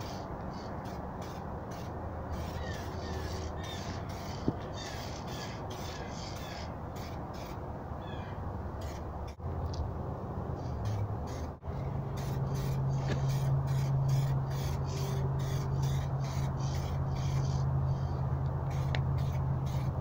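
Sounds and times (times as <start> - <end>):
crows cawing: 0.0 - 9.0
steady low hum: 0.0 - 20.0.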